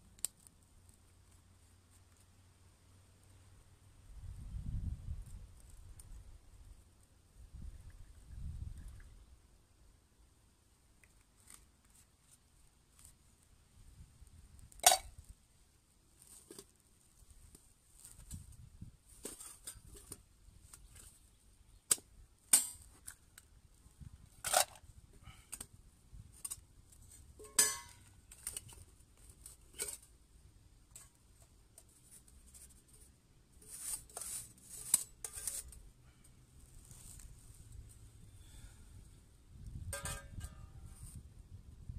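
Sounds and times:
metal camp stove and pot clinking: 14.7 - 15.3, 19.2 - 21.2, 21.9 - 23.4, 24.2 - 30.1, 30.9 - 35.9, 39.7 - 41.2.

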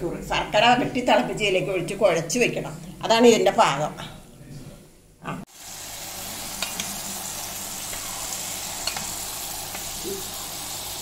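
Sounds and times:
batter sizzling in hot oil: 5.5 - 11.0.

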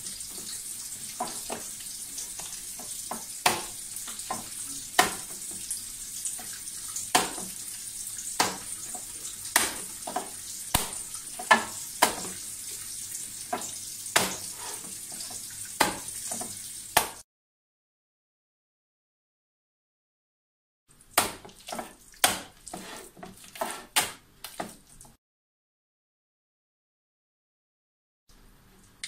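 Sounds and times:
wet slaps of minced meat: 3.1 - 4.4, 5.0 - 5.4, 7.1 - 7.6, 8.3 - 8.8, 9.5 - 12.3, 13.5 - 14.5, 15.8 - 16.2, 16.9 - 17.2, 21.2 - 22.6.

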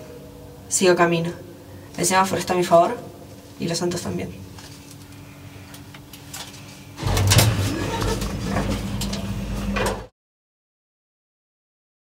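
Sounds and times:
elevator car humming: 7.0 - 10.1
elevator doors sliding open: 7.0 - 10.1.

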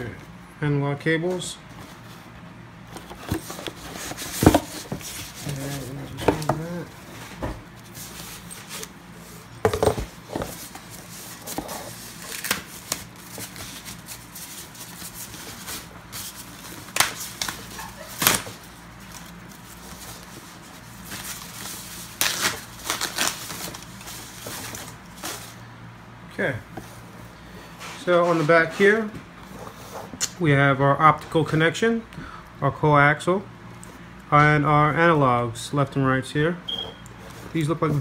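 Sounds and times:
foam wrap rustling: 3.0 - 25.6.

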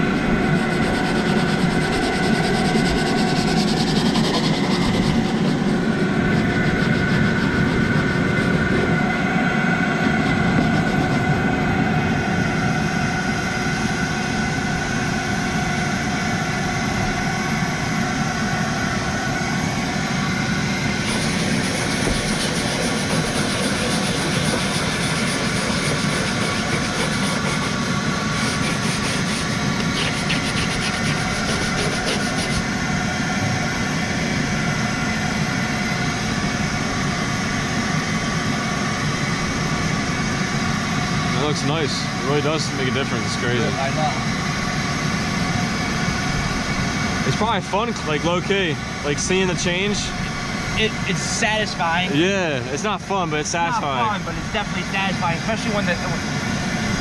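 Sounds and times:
steady mechanical drone: 0.0 - 57.0
brush scrubbing plastic panel: 0.3 - 8.9, 10.3 - 11.2, 21.0 - 32.6.

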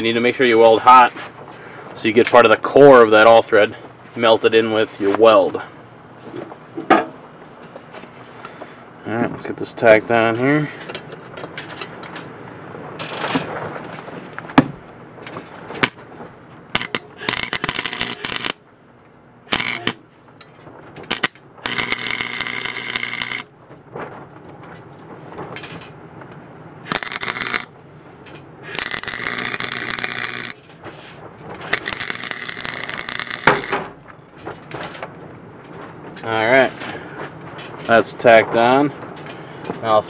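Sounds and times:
welder arc crackling: 15.8 - 18.7, 19.5 - 20.1, 21.0 - 23.6, 26.9 - 27.8, 28.7 - 31.0, 31.6 - 34.2
sharp metal clicks: 16.8 - 18.6, 21.1 - 23.5, 26.9 - 27.7, 28.8 - 30.6, 31.7 - 33.8.

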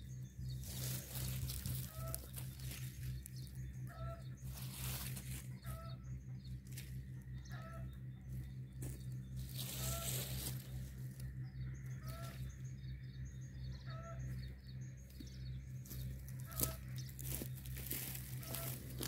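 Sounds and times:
bird calling: 0.0 - 19.0
low steady hum: 0.0 - 19.0
dry sticks rustling and crackling: 0.2 - 5.8, 8.8 - 12.6, 15.7 - 19.0.

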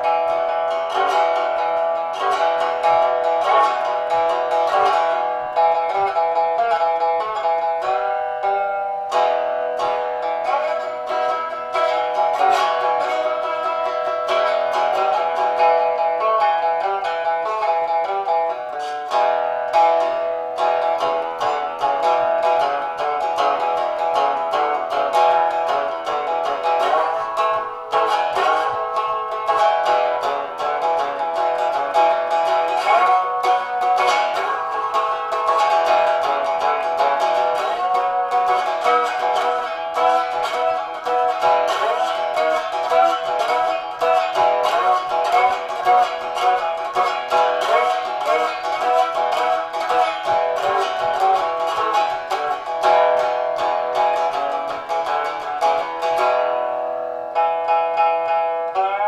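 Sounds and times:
slide guitar picked notes: 0.0 - 59.0.

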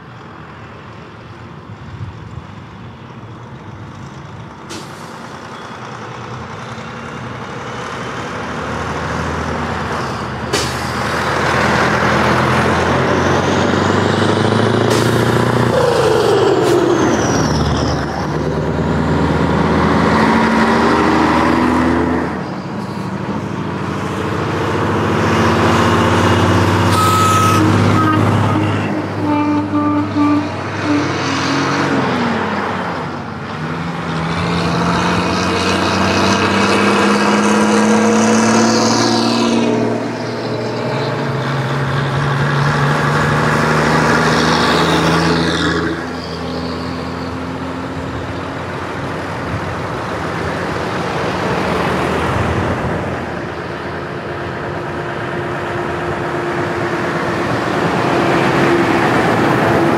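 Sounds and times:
diesel lorries driving past: 0.0 - 59.9
short horn toots: 26.9 - 31.2.

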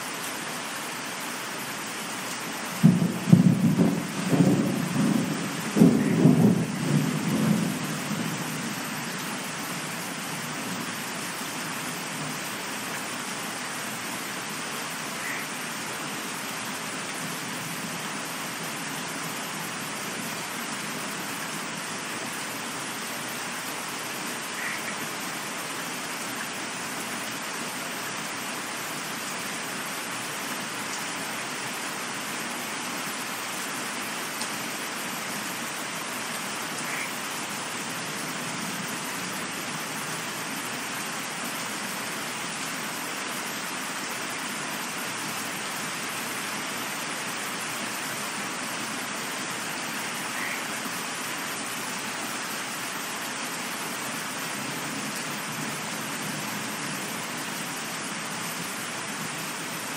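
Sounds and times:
steady rain: 0.0 - 59.9
low rumble of thunder: 2.8 - 8.6.

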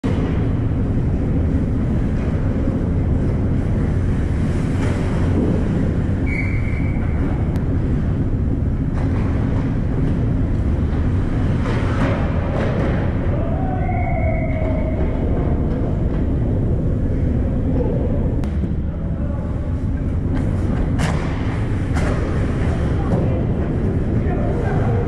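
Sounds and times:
ice rink background rumble: 0.0 - 25.0
referee's whistle: 6.2 - 7.1.

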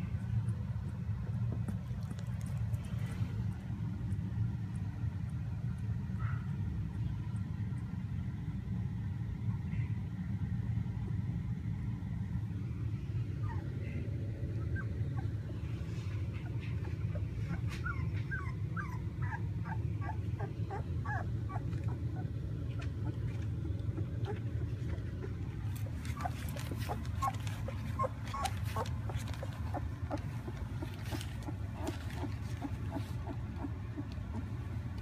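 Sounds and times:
puppies whimpering: 13.2 - 35.0.

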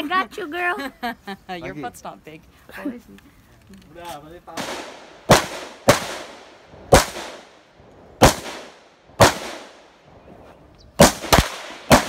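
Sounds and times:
rifle shots with echo: 4.5 - 7.6, 8.2 - 10.1, 11.0 - 12.0.

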